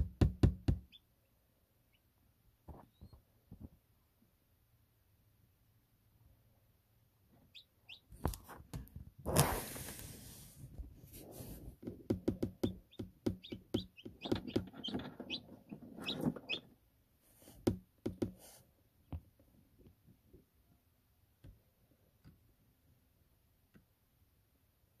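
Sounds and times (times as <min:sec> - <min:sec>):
taps and knocks: 0:00.0 - 0:00.9, 0:11.8 - 0:15.4, 0:17.6 - 0:18.4
chick peeping: 0:07.5 - 0:08.1, 0:12.6 - 0:16.7.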